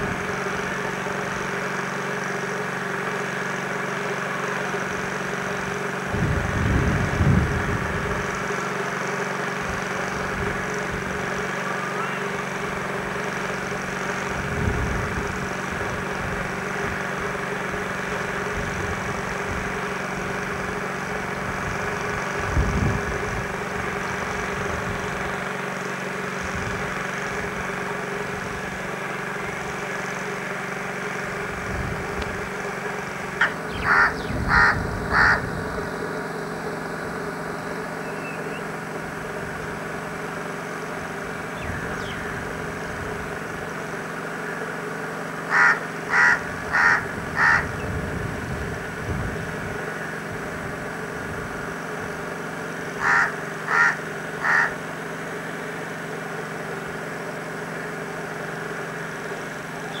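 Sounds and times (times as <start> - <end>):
steady low hum: 0.0 - 60.0
crow cawing: 33.4 - 35.5, 45.5 - 47.8, 53.0 - 54.8.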